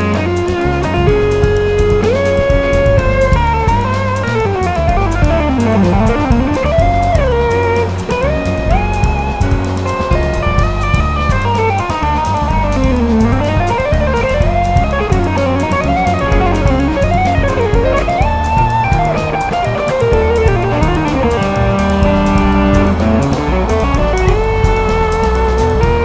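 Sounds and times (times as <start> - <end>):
bass: 0.0 - 26.0
drum kit: 0.0 - 26.0
electric guitar solo: 0.0 - 26.0.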